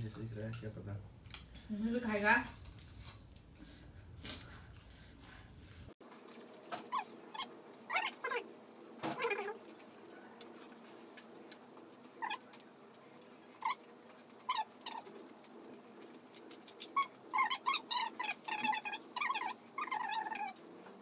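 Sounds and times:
steady low hum: 0:00.0 - 0:06.0
eating clicks and smacks: 0:06.2 - 0:20.6
small animal crying: 0:17.4 - 0:20.6.

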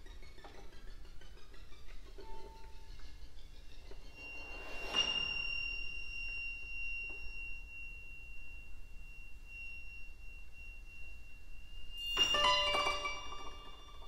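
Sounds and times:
high pure tone held by ensemble: 0:03.7 - 0:14.0.

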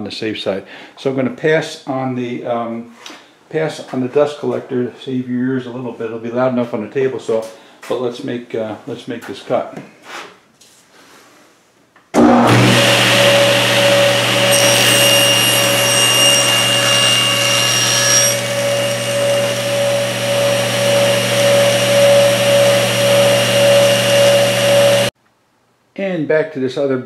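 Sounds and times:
saw blade cutting board: 0:12.2 - 0:25.1
table saw running: 0:12.2 - 0:25.1.

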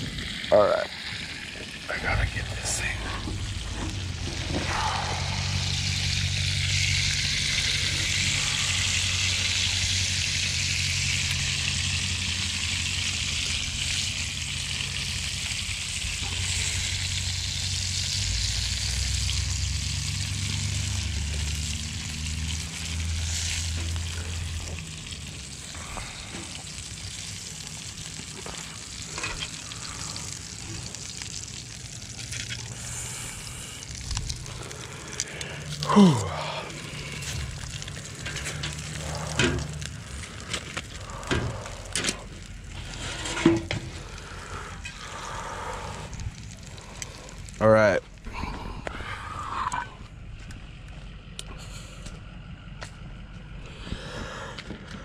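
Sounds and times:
fish frying in hot oil: 0:00.0 - 0:48.2
low steady rumble: 0:00.0 - 0:55.0.

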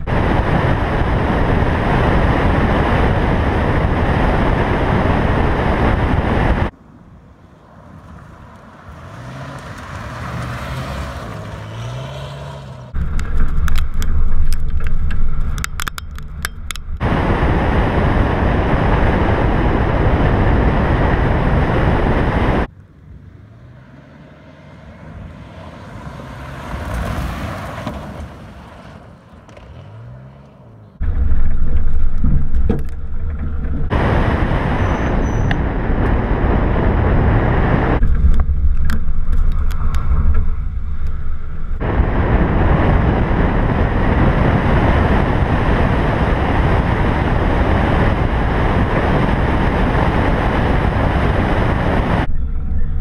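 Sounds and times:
wind noise: 0:00.0 - 0:06.8, 0:12.9 - 0:22.7, 0:31.0 - 0:53.0
gravel road noise: 0:00.0 - 0:53.0
car passing on gravel road: 0:06.6 - 0:16.4, 0:22.5 - 0:45.6
sharp ticks: 0:13.0 - 0:17.0.

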